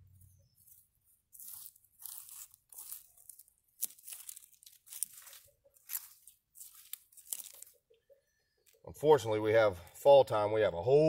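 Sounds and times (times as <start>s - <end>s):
weeds pulled from soil: 0.2s - 7.9s
roots snapping: 0.6s - 7.8s.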